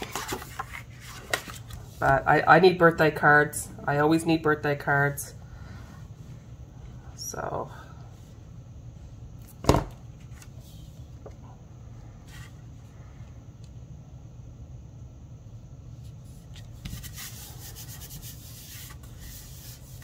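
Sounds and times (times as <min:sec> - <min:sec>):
paper rustling: 0:00.0 - 0:02.1.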